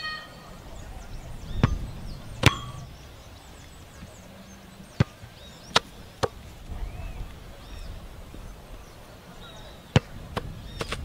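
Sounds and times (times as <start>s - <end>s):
boot kicking football: 2.4s - 2.9s.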